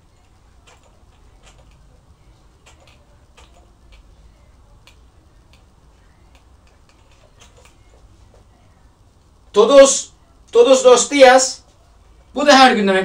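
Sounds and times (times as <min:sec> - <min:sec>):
marker writing on whiteboard: 0:06.3 - 0:08.5.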